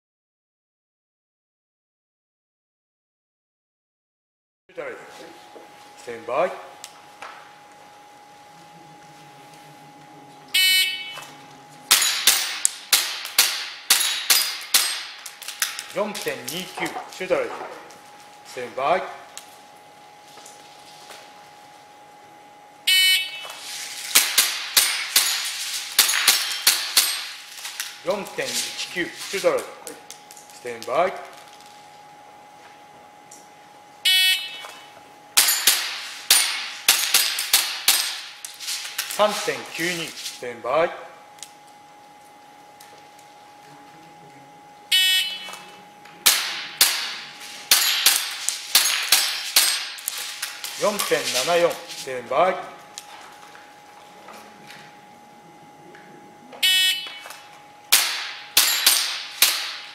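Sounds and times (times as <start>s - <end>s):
airsoft pistol shots: 11.9s - 15.2s, 24.1s - 25.4s, 46.2s - 50.0s, 57.9s - 59.9s
pellets clanging off steel plate: 11.9s - 17.2s, 23.7s - 29.4s, 35.4s - 40.1s, 46.3s - 52.1s, 57.9s - 59.9s.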